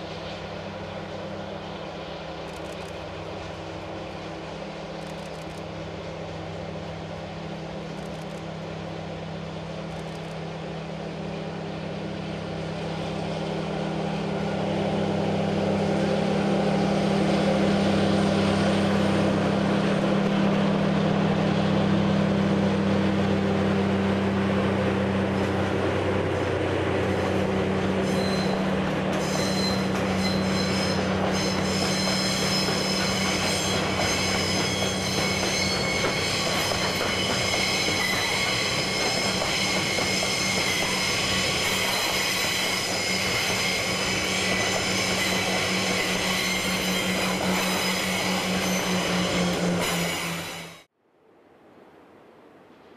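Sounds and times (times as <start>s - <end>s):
locomotive engine droning: 0.0s - 50.9s
wheels squealing on curve: 28.0s - 50.9s.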